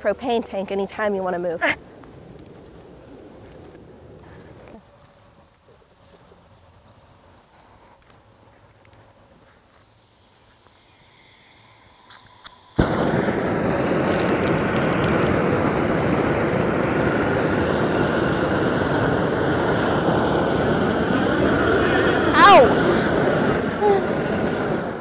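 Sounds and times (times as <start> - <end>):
gas hissing: 9.4 - 25.0
torch lighting with a whoosh: 9.5 - 25.0
steady rushing flame: 9.7 - 25.0.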